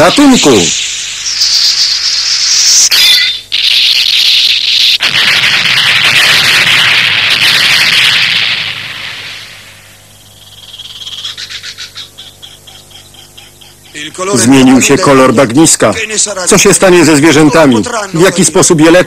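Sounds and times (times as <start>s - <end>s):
cartoon energy beam blast: 0.0s - 10.2s
rapid pulsing frog croaks: 9.9s - 14.8s.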